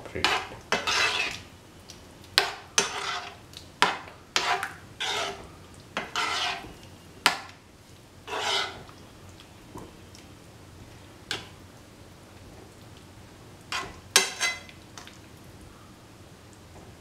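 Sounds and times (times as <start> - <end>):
spoon scraping a pan: 0.2 - 1.5, 2.4 - 7.6, 8.2 - 9.0, 13.7 - 15.1.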